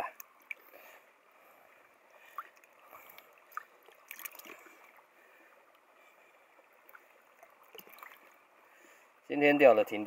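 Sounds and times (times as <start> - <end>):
water sloshing: 0.2 - 9.1
small splashes: 2.1 - 8.8.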